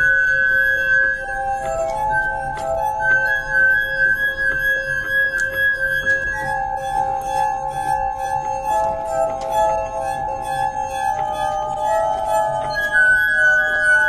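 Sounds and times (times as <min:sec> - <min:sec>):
glass armonica sustained notes: 0:00.0 - 0:14.0.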